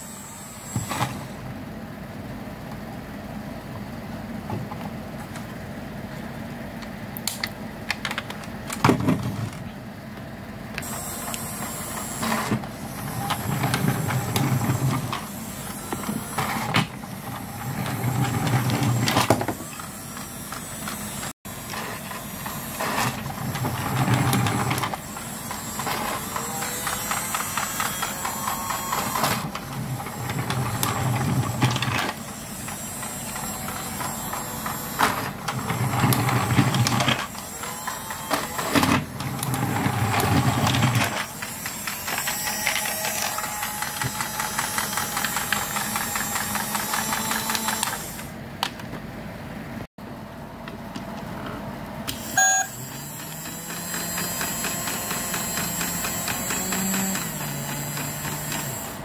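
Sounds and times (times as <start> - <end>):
toy train motor whirring: 10.8 - 48.3, 52.1 - 59.0.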